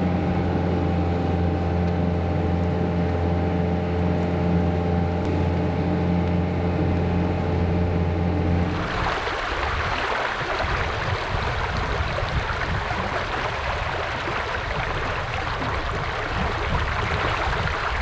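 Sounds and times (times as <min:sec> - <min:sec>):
river water rushing: 0:08.6 - 0:18.0.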